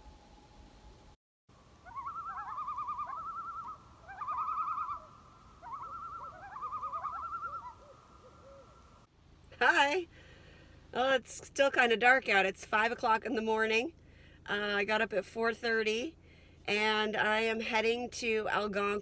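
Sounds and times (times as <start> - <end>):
loon tremolo call: 1.8 - 8.9.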